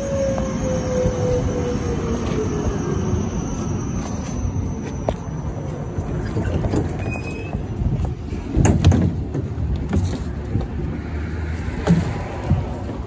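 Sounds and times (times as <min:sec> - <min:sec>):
tram rumble: 0:00.0 - 0:13.0
rattles and knocks: 0:08.5 - 0:10.3.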